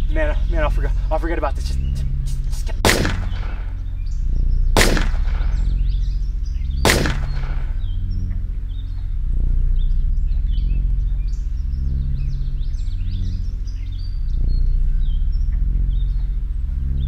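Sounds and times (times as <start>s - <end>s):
birds chirping faintly: 0.0s - 17.0s
low droning music: 0.0s - 17.0s
pistol shots: 2.8s - 3.8s, 4.8s - 5.7s, 6.8s - 7.8s.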